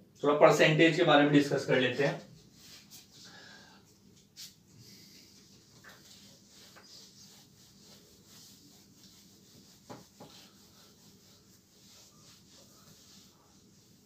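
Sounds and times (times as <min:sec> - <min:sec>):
whiteboard being wiped: 0:02.0 - 0:03.3, 0:04.2 - 0:14.0.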